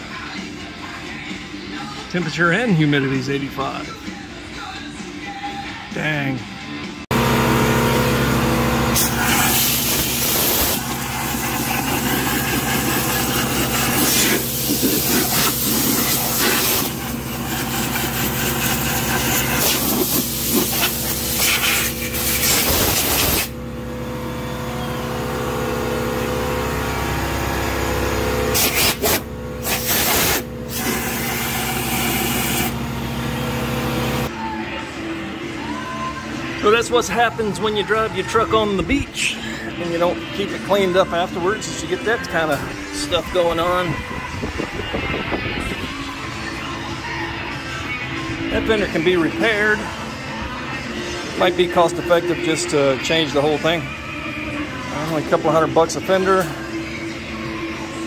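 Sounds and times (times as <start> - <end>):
air blow gun hissing: 8.9 - 23.6, 28.5 - 32.8
low hum: 23.5 - 29.8, 30.4 - 34.3.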